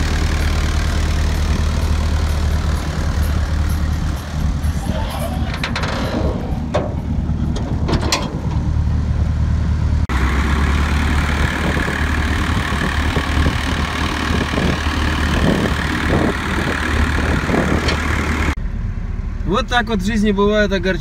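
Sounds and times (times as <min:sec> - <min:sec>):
truck engine running: 0:00.0 - 0:21.0
metallic clanks: 0:01.4 - 0:09.2.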